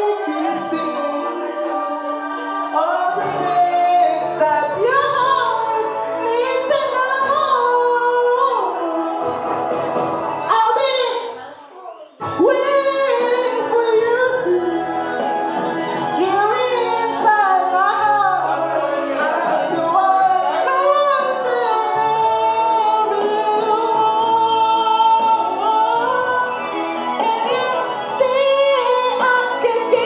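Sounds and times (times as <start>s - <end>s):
man singing ballad: 0.0s - 9.4s, 12.2s - 30.0s
backing music: 0.0s - 11.5s, 12.2s - 30.0s.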